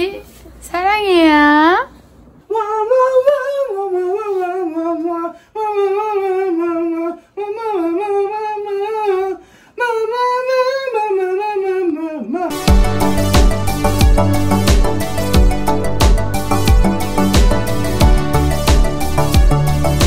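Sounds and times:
music: 12.5s - 20.0s.

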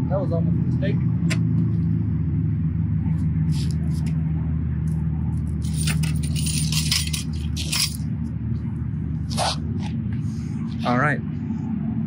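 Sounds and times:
steady low rumble: 0.0s - 12.0s
metal stand clattering: 5.7s - 8.0s.

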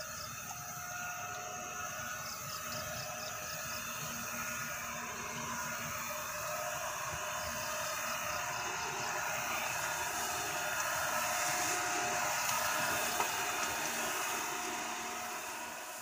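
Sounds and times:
mist blower engine drone: 0.0s - 16.0s
rushing hiss of air: 3.8s - 16.0s.

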